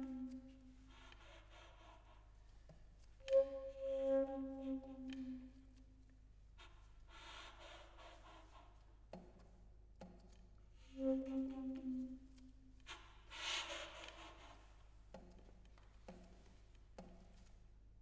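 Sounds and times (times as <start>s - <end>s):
soft breathy saxophone: 0.0s - 2.8s, 6.6s - 9.0s.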